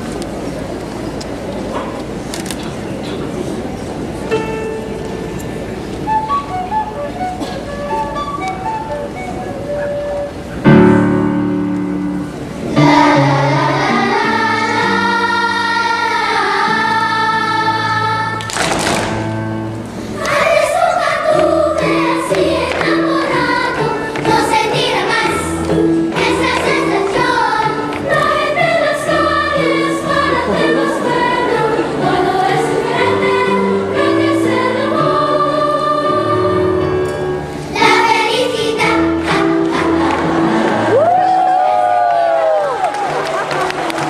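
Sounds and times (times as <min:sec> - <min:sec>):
instrumental accompaniment: 0:04.3 - 0:40.9
girls choir singing: 0:12.6 - 0:18.6, 0:20.1 - 0:41.1.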